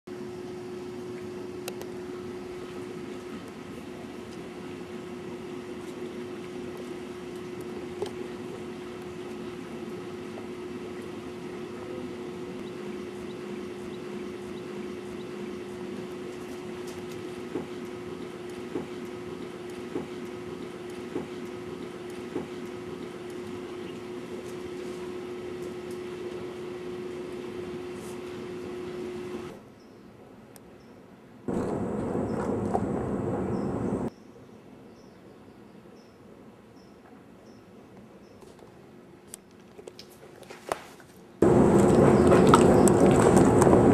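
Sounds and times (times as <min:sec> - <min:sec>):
steady low hum: 0:00.1 - 0:29.6, 0:31.5 - 0:34.1, 0:41.4 - 0:43.9.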